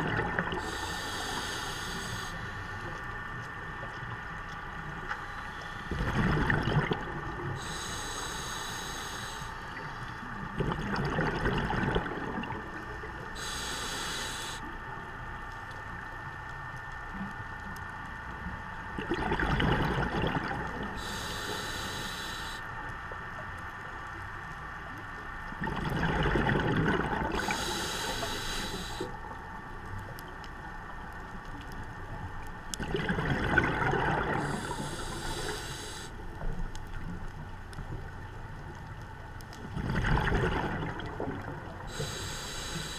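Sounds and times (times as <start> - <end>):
exhaled bubbles: 0.0 - 0.7, 5.9 - 7.8, 10.5 - 13.6, 19.0 - 21.1, 25.5 - 27.8, 32.7 - 35.5, 39.6 - 42.2
regulator inhalation hiss: 0.6 - 2.9, 7.6 - 10.0, 13.3 - 14.7, 21.0 - 22.7, 27.4 - 29.2, 34.4 - 36.2, 41.9 - 42.9.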